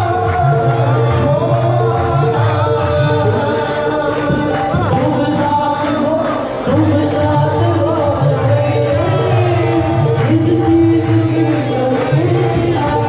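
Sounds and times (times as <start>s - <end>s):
sung hymn: 0.0s - 13.0s.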